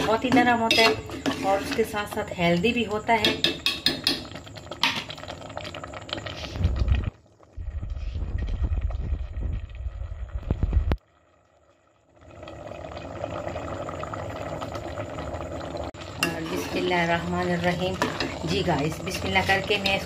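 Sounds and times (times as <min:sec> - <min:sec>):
mash bubbling in a metal pot: 0:00.0 - 0:02.5, 0:03.2 - 0:07.0, 0:15.9 - 0:20.0
low steady rumble: 0:06.6 - 0:11.0.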